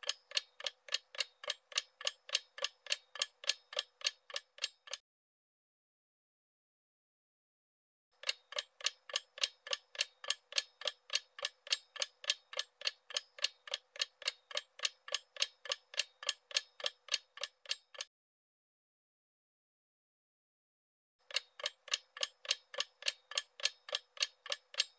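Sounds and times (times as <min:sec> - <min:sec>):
clock ticking: 0:00.0 - 0:05.0, 0:08.2 - 0:18.1, 0:21.2 - 0:24.9.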